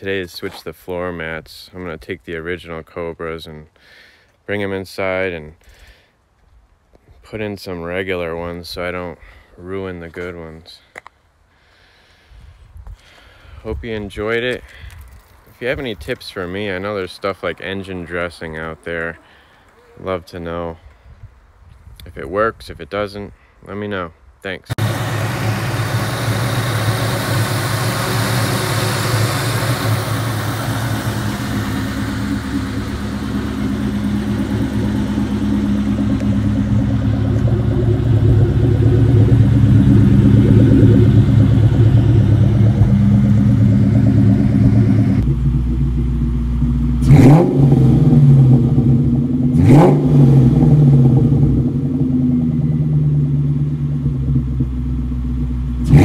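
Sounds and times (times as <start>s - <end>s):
car engine idling: 24.7s - 56.0s
car engine revving: 24.7s - 56.0s.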